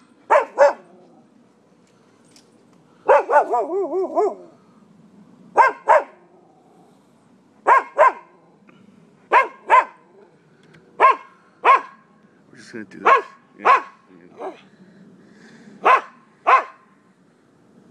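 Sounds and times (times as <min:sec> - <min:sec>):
dog barking: 0:00.3 - 0:00.9, 0:03.1 - 0:04.5, 0:05.6 - 0:06.2, 0:07.6 - 0:08.3, 0:09.3 - 0:10.0, 0:11.0 - 0:12.0, 0:13.0 - 0:14.6, 0:15.8 - 0:16.8
dog yelping: 0:00.3 - 0:00.9, 0:03.1 - 0:04.5, 0:07.7 - 0:08.3, 0:09.3 - 0:10.2, 0:11.0 - 0:11.9, 0:13.1 - 0:14.6, 0:15.8 - 0:16.8.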